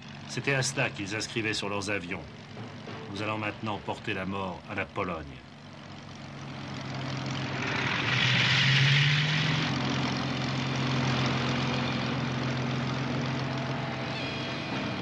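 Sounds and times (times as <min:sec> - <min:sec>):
propeller aircraft engine drone: 0:00.0 - 0:15.0.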